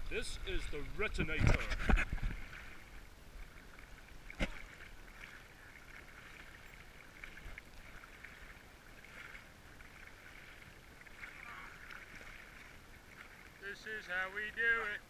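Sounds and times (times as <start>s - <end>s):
shallow water sloshing: 0.0s - 15.0s.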